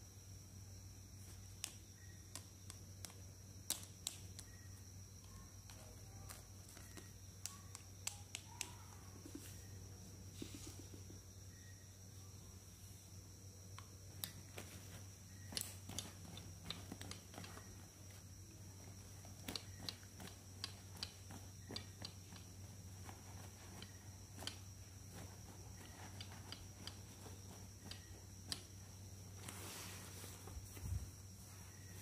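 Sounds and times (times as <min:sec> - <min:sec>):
steady low hum: 0:00.0 - 0:32.0
plastic dolls clicking and tapping: 0:01.6 - 0:04.6, 0:05.2 - 0:09.4, 0:15.5 - 0:17.8, 0:19.2 - 0:22.6
faint rustling: 0:14.3 - 0:32.0.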